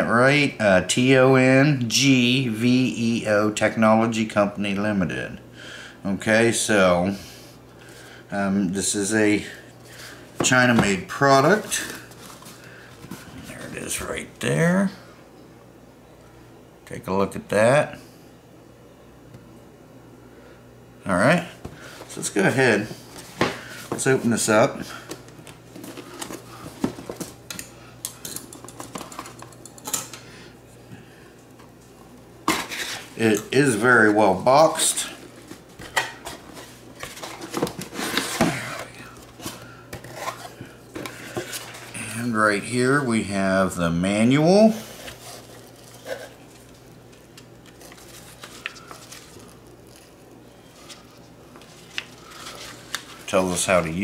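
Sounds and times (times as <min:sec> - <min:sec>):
hands handling cardboard box: 0:25.1 - 0:27.4, 0:35.2 - 0:41.9
paper booklet rustling: 0:44.8 - 0:53.7.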